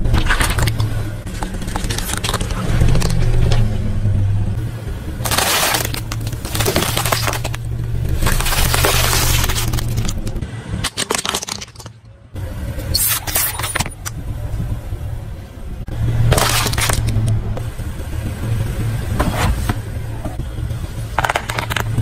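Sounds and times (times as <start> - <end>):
car engine hum: 0.0 - 10.9, 12.2 - 22.0
plastic crinkling and crackling: 5.2 - 12.0.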